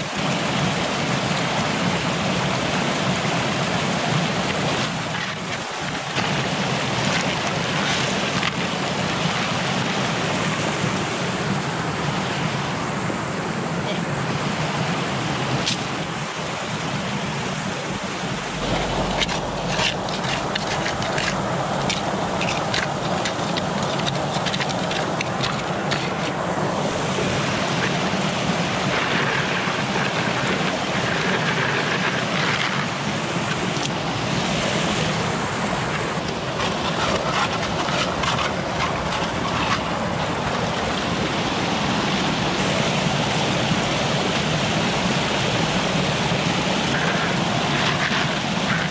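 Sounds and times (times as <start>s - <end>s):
waterfall rushing over rocks: 0.0s - 48.9s.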